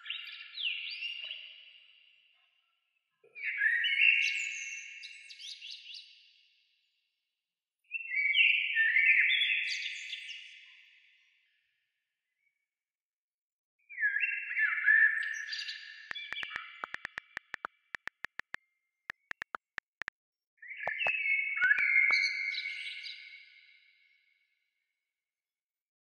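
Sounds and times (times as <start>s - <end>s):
rapid sharp clicks: 16.1s - 20.1s, 20.9s - 21.1s
high sliding chirping tones: 20.9s - 21.1s.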